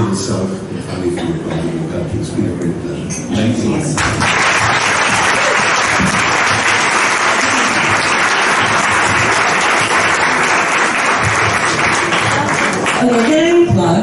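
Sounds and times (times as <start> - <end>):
audience applauding: 4.0 - 13.7.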